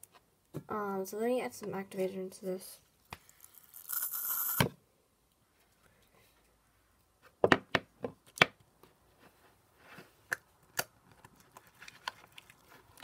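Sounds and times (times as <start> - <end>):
bottle squirting with a hiss: 3.5 - 4.6.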